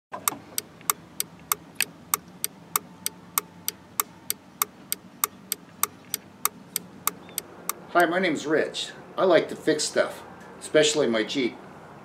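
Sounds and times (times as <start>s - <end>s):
turn signal flasher clicking: 0.1s - 8.1s.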